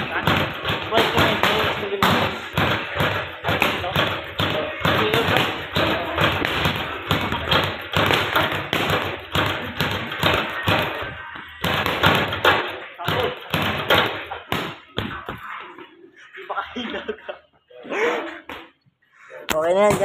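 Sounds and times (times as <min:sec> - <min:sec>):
gloved punches on a punching bag: 0:00.0 - 0:11.0
ball slapping back on cords: 0:00.0 - 0:15.5.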